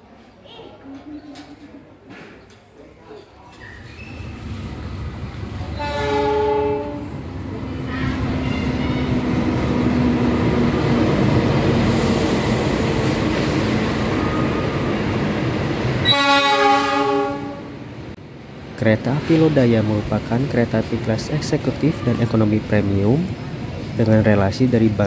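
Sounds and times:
train wheels rumbling: 0:03.7 - 0:25.0
locomotive horn blasts: 0:05.8 - 0:07.2, 0:16.0 - 0:17.8.

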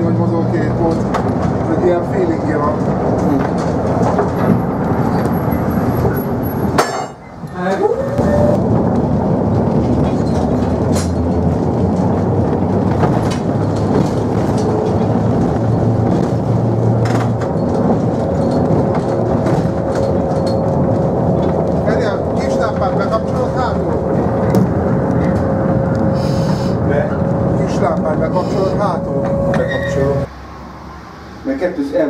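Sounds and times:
tram wheels rumbling on rails: 0:00.0 - 0:30.3.

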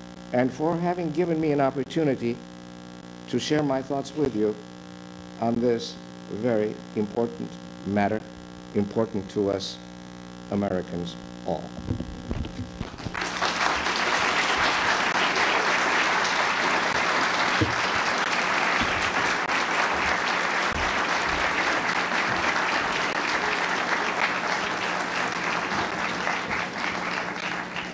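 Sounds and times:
low mains hum: 0:00.0 - 0:27.9
audience applauding: 0:12.8 - 0:27.9.

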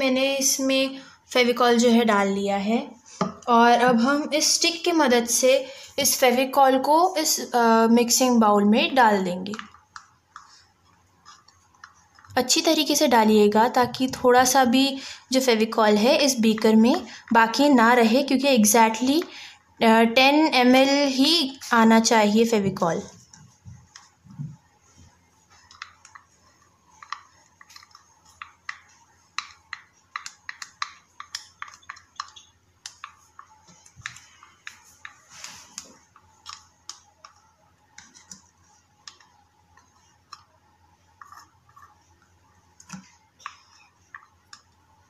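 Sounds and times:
stick scraping plastic beaker: 0:25.5 - 0:37.4.

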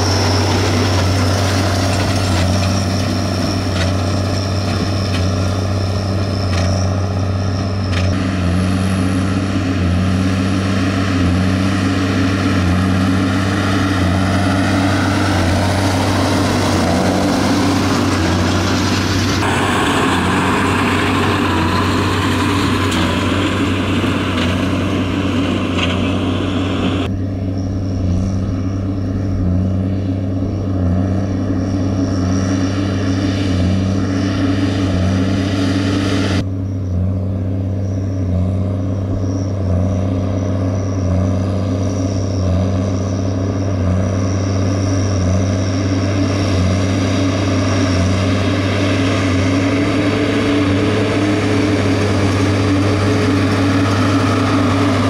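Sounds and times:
baler working: 0:00.0 - 0:55.0
tractor diesel engine under load: 0:00.0 - 0:55.0.

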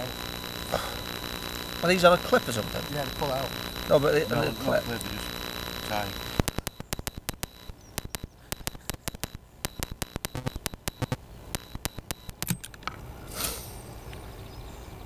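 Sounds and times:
sharp clicks and knocks: 0:06.3 - 0:13.0.

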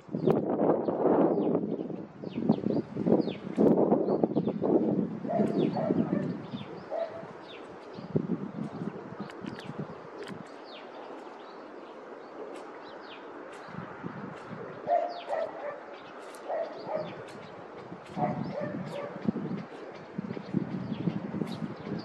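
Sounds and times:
small birds chirping: 0:00.1 - 0:22.0
dog barking: 0:05.3 - 0:06.3, 0:06.9 - 0:07.3, 0:14.9 - 0:17.2, 0:18.2 - 0:19.2.

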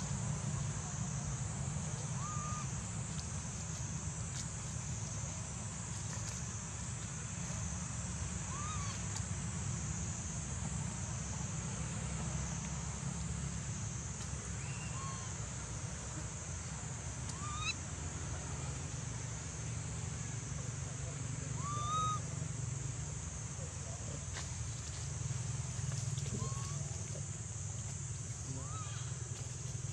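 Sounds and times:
constant high hiss: 0:00.0 - 0:29.9
monkey calling: 0:02.0 - 0:02.7, 0:08.5 - 0:09.0, 0:14.6 - 0:15.4, 0:17.3 - 0:17.8, 0:21.5 - 0:22.2, 0:26.3 - 0:27.0, 0:28.5 - 0:29.2.

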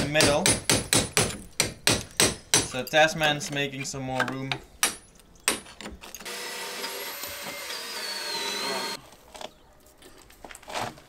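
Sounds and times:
power tool whining: 0:06.2 - 0:09.0.

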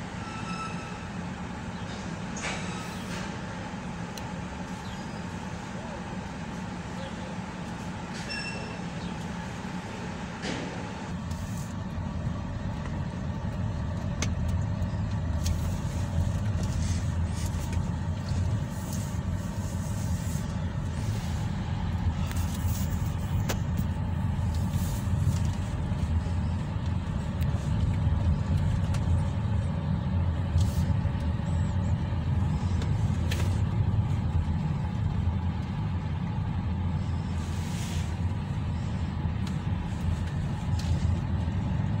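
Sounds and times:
car cabin rumble: 0:10.4 - 0:42.0.

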